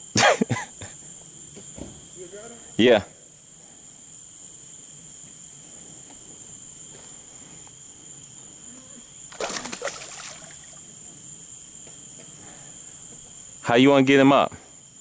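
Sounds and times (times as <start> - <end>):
insects trilling: 0.0 - 15.0
water splash: 9.3 - 10.8.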